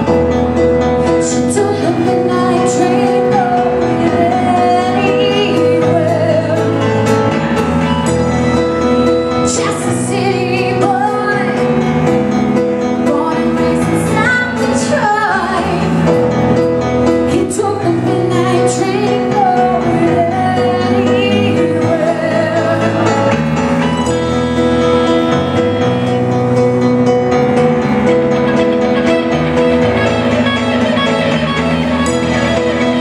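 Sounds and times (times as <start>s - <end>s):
live rock band playing: 0.0s - 33.0s
woman singing: 1.1s - 7.0s, 9.4s - 12.0s, 13.0s - 16.1s, 17.2s - 23.4s.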